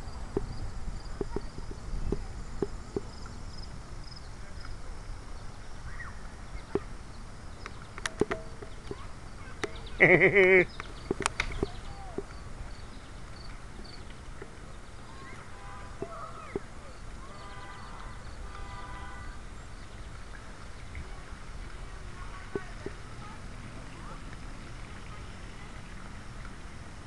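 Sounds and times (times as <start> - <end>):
clicks and knocks from bike: 7.6 - 9.8, 10.8 - 12.4
bicycle rolling over pavement: 16.0 - 27.0.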